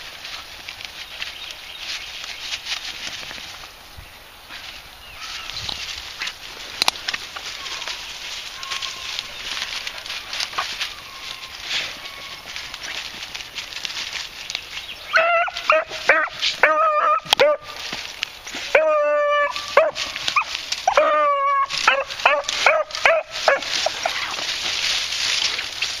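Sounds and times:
dry brush crackling: 0.0 - 26.0
dogs yipping and baying: 8.6 - 13.0, 15.1 - 17.8, 18.6 - 24.6.

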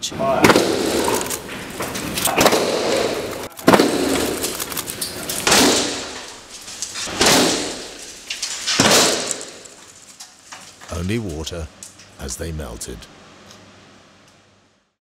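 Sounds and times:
hailstones striking glass: 0.5 - 11.1.

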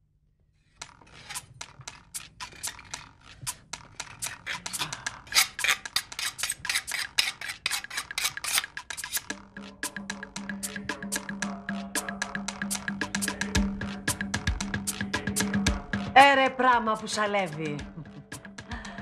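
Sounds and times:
music cue with steady notes: 8.7 - 19.0.

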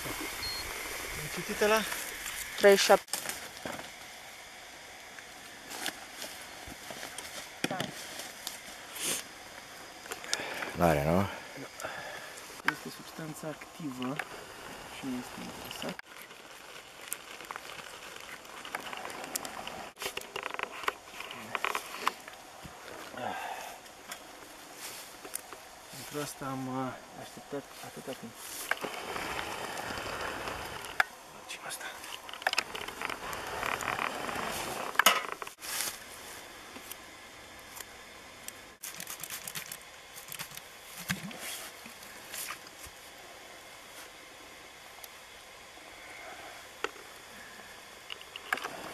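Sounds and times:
dry leaves crackling underfoot: 1.3 - 4.3, 12.9 - 26.3, 32.1 - 36.5.

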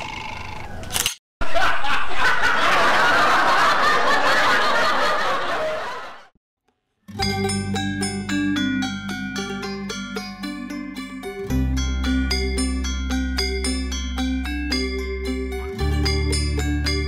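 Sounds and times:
laugh track: 1.4 - 6.3
mallet percussion music: 7.1 - 17.0.

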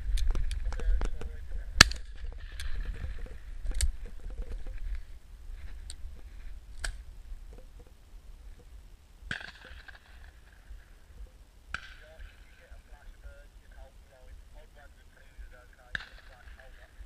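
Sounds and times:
wind rumble on microphone: 0.0 - 8.9
distant shotgun shots: 9.3 - 10.7, 11.7 - 12.6, 15.9 - 16.9.

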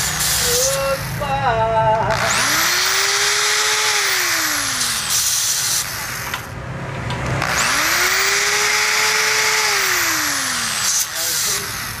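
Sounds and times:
drill press motor running: 2.1 - 6.6, 7.3 - 12.0.

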